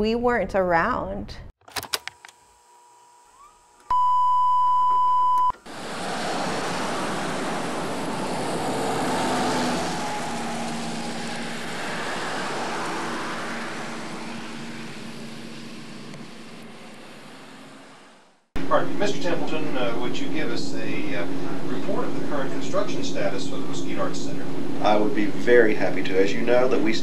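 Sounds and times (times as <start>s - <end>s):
wash of noise: 5.6s - 20.3s.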